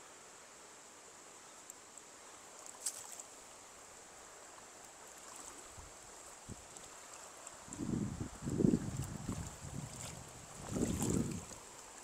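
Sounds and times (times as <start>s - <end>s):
river water rushing: 2.3s - 12.0s
brief sharp click or splash: 2.7s - 3.2s.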